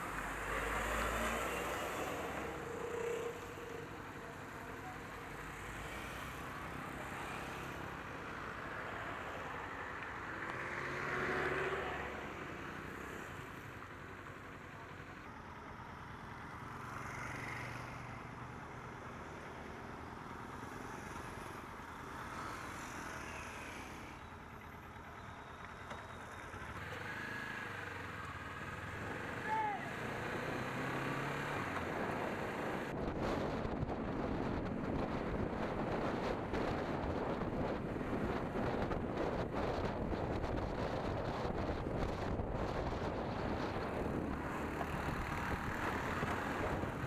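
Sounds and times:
louder vehicle passing: 0.0 - 4.1, 5.4 - 13.2, 26.8 - 47.0
small engines and road noise: 0.0 - 47.0.

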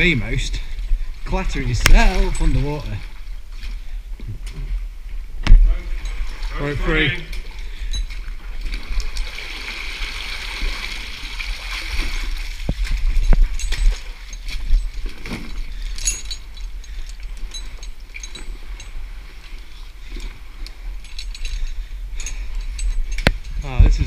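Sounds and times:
water splashing and sloshing: 0.0 - 24.0
steady low rumble: 12.4 - 24.0.

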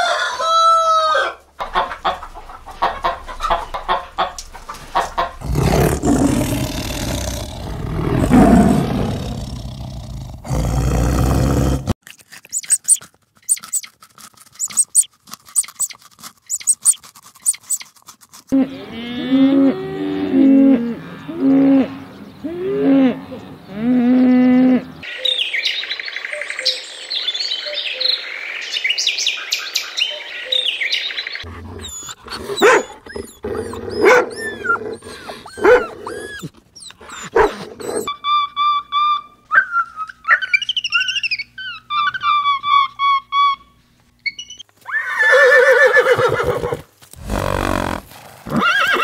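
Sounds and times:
rabbit crunching lettuce: 12.0 - 18.6
budgerigar chattering: 14.6 - 17.8, 40.1 - 43.6
wavering animal cries: 31.4 - 47.9, 48.5 - 49.0.

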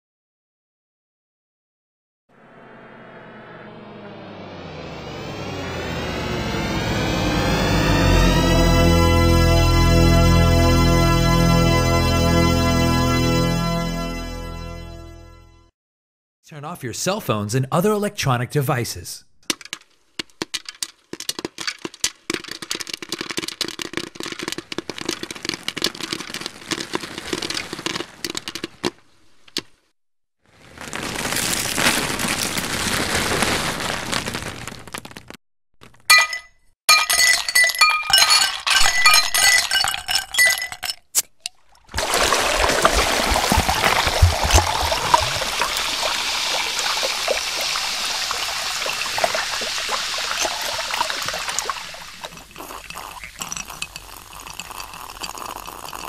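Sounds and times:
ice cubes clinking against glass: 36.1 - 56.0
soda fizzing: 41.2 - 56.0
liquid pouring into a glass: 41.4 - 56.0.

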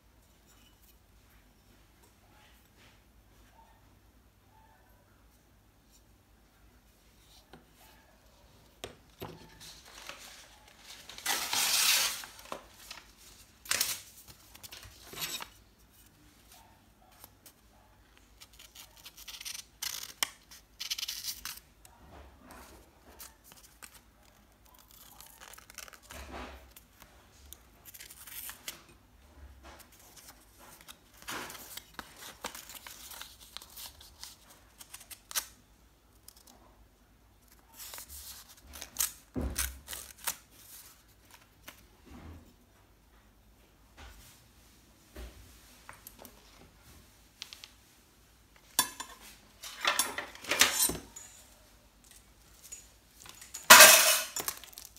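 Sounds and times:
knife slicing paper: 10.2 - 12.5.

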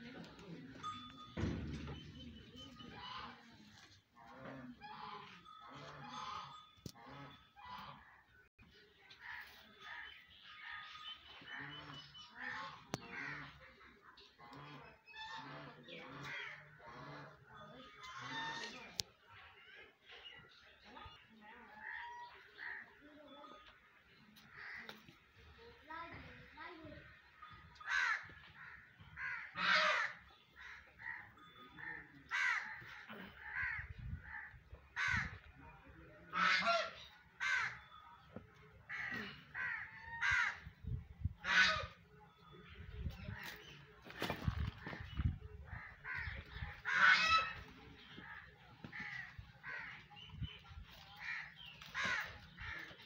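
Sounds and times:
crows cawing: 27.8 - 35.5, 36.3 - 38.0, 38.9 - 40.8, 45.7 - 50.3, 51.2 - 53.0.

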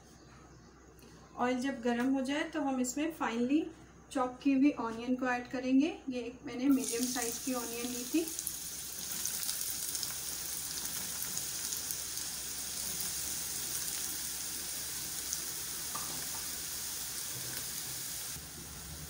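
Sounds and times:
onion sizzling in hot oil: 6.7 - 19.0.

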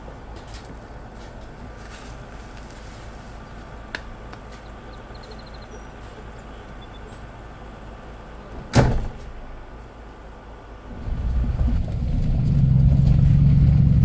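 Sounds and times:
door shutting with thump: 8.6 - 9.4
low rumble: 10.9 - 14.0.

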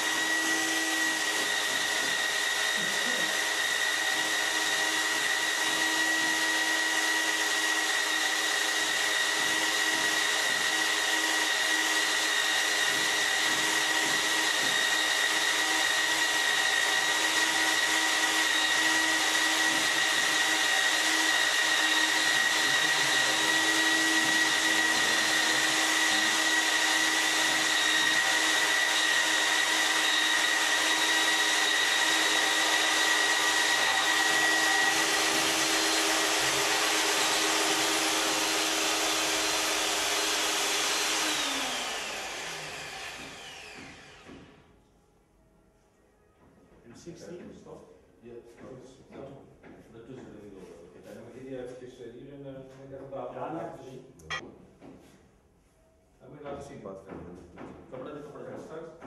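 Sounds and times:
magnetic drill boring through steel: 0.0 - 44.4.

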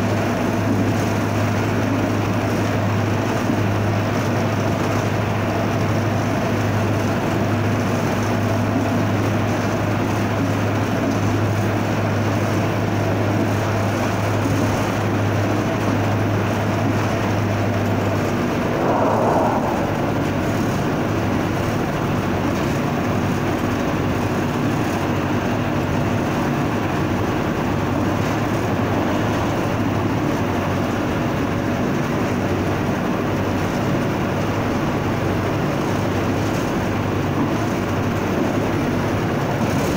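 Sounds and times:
low engine hum: 18.2 - 21.8
short loud burst: 18.4 - 21.3.

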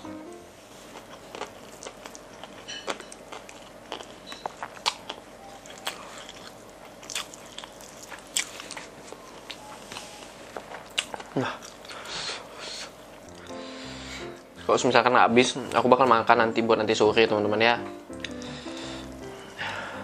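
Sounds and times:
crunchy chewing: 0.8 - 12.1.

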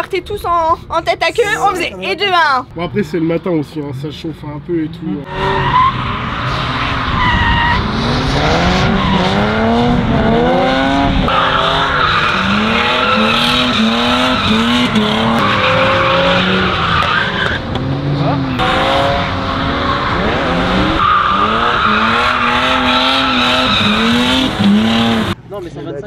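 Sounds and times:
car engine revving: 4.0 - 25.4
tyre squeal: 5.3 - 7.9.

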